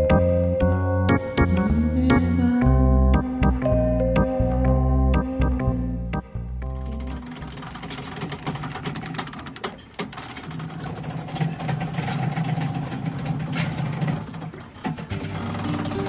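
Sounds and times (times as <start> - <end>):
low steady hum: 0.0 - 8.0
fast mechanical clatter: 6.8 - 16.0.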